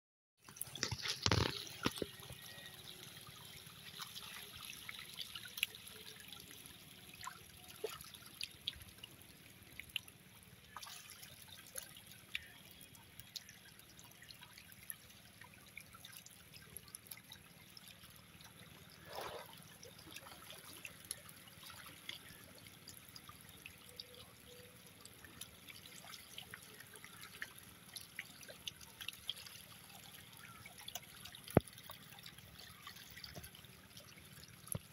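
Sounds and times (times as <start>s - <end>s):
small pops and slurps: 0.5s - 2.3s, 19.0s - 19.5s
fish splashing at water surface: 18.8s - 27.4s.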